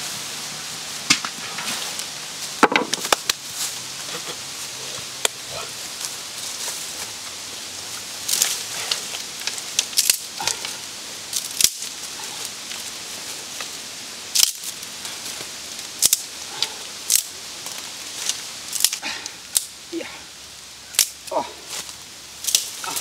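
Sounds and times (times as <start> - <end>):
dry leaf litter rustling: 0.0 - 23.0
dry branches snapping: 1.1 - 4.4, 7.9 - 19.8, 20.9 - 23.0.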